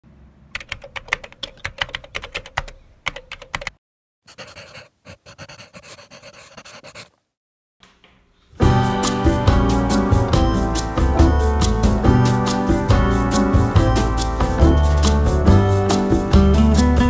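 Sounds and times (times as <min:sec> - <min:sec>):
computer keyboard typing: 0:00.6 - 0:03.8
scratchy rustling: 0:04.3 - 0:07.2
music: 0:08.6 - 0:17.0.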